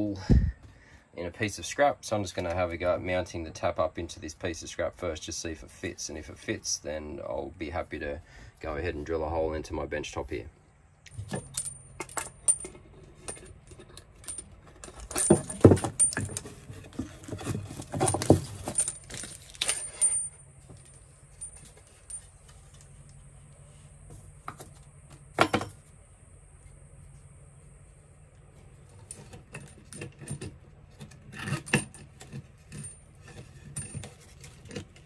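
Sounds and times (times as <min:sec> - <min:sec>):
metal hose fittings clinking: 0:11.1 - 0:23.2, 0:28.9 - 0:35.0.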